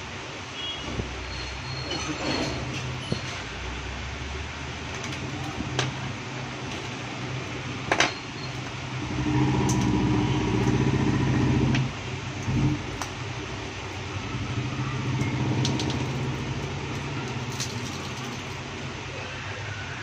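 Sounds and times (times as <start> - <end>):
vehicle engine humming: 2.7 - 20.0.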